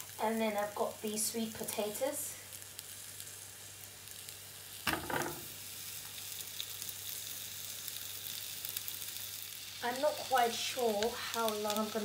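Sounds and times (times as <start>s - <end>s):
vegetables sizzling in a pan: 0.0s - 12.0s
sweet potato thumping into pan: 4.8s - 5.5s.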